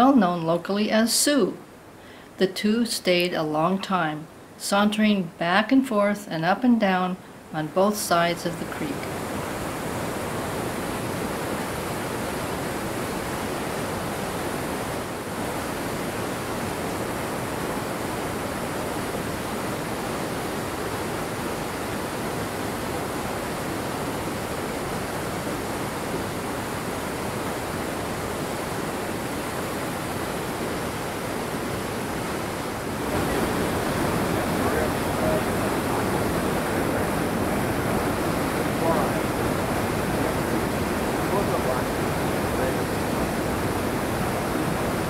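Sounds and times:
water rushing over rocks: 0:08.8 - 0:45.0.

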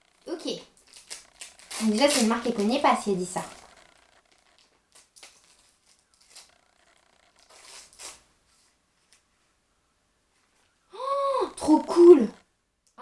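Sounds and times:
paper wrapping tearing and rustling: 0:00.4 - 0:08.3.

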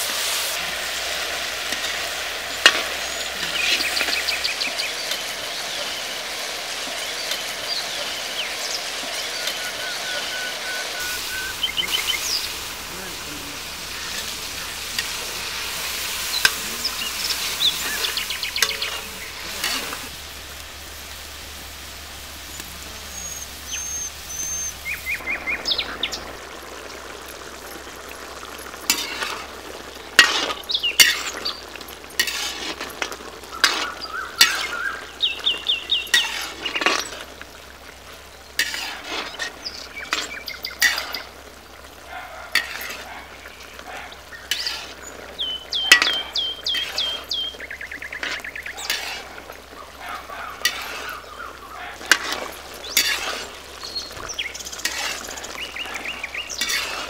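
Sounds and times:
curry sizzling in a pan: 0:00.0 - 0:57.0
metal utensil scraping a pan: 0:00.6 - 0:20.1, 0:28.8 - 0:37.4, 0:38.6 - 0:41.4, 0:42.5 - 0:43.8, 0:44.4 - 0:57.0
bird chirps: 0:07.0 - 0:15.4, 0:16.2 - 0:19.9, 0:22.4 - 0:26.4, 0:33.5 - 0:36.8, 0:45.4 - 0:48.9, 0:53.8 - 0:56.8.

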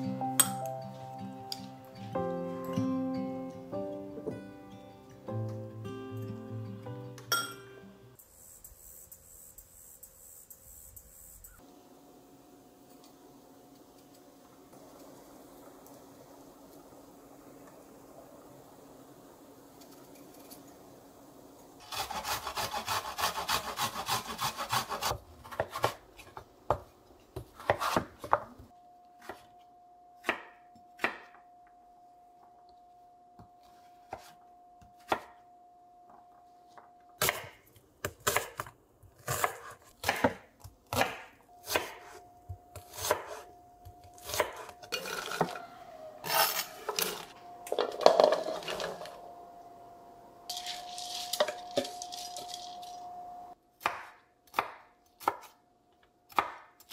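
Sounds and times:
faint steady tone: 0:28.7 - 0:37.2, 0:47.3 - 0:53.6
cubes tumbling into a pot: 0:47.0 - 0:49.2, 0:50.5 - 0:53.2.

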